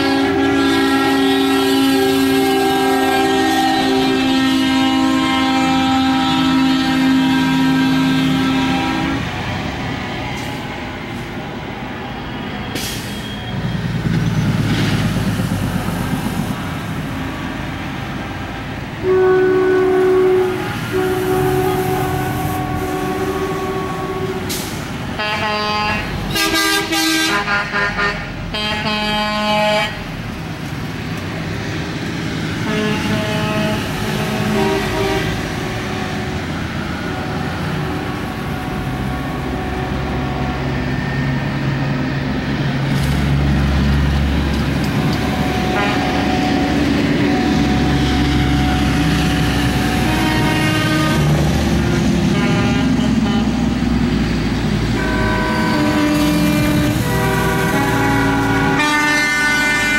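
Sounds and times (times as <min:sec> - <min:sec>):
air horn blasts: 0:00.0 - 0:09.3, 0:19.0 - 0:30.0, 0:32.6 - 0:41.2, 0:44.7 - 0:54.0, 0:54.9 - 0:59.9
heavy trucks driving past: 0:00.0 - 0:59.9.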